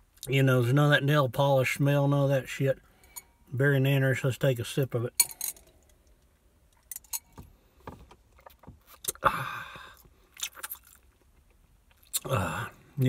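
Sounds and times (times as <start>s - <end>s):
mouth clicks and lip smacks: 8.4s - 9.2s, 9.9s - 12.3s.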